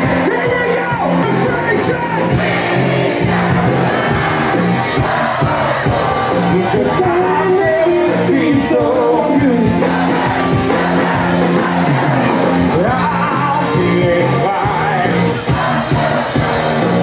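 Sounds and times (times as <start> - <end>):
crowd shouting: 0.0 - 17.0
live rock band with singing: 0.0 - 17.0.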